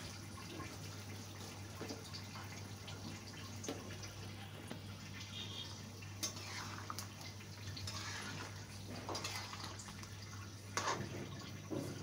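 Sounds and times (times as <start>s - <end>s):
metal spoon stirring in a wok: 6.2s - 7.1s, 7.8s - 10.1s, 10.7s - 11.2s
liquid sloshing: 6.3s - 12.0s.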